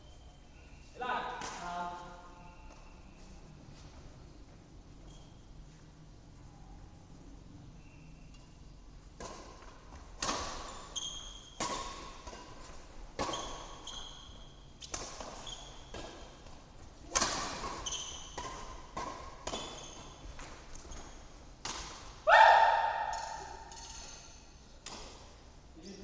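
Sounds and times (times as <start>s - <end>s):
rackets hitting shuttlecock: 9.1s - 25.4s.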